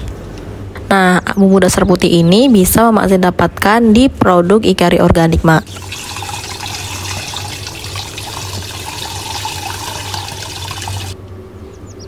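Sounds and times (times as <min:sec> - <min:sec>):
tap water spraying: 0:05.7 - 0:11.2.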